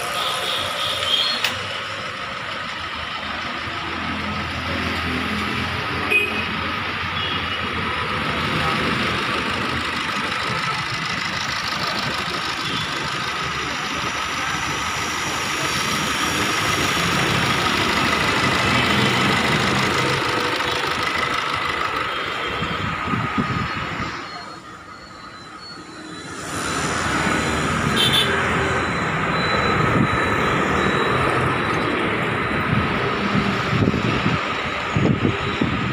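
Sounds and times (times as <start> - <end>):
car engine idling: 7.8 - 23.0.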